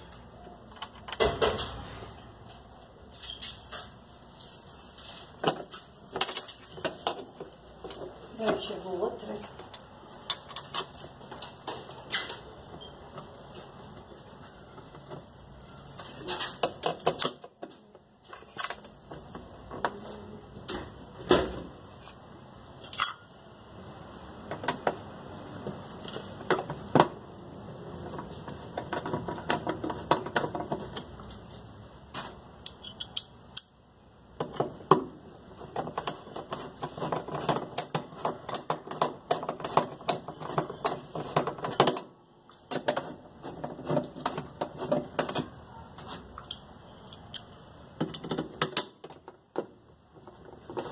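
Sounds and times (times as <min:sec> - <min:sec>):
metal tools knocking and clinking: 0:22.8 - 0:23.3, 0:32.6 - 0:33.8, 0:46.4 - 0:49.3.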